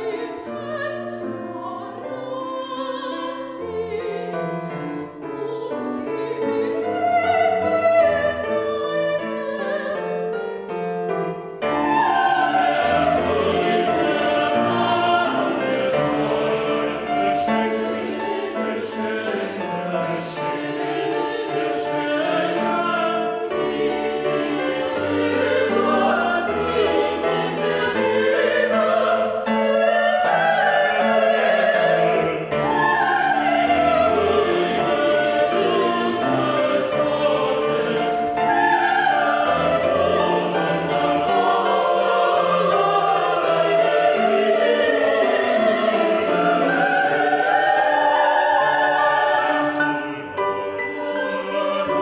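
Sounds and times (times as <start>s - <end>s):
choir singing sustained chords: 11.5s - 52.0s.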